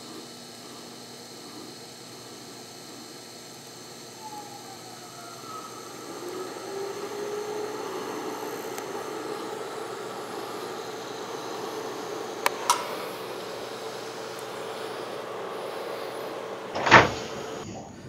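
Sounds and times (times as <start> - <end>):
shop equipment hum and hiss: 0.0 - 18.0
faint rising tone: 4.1 - 17.7.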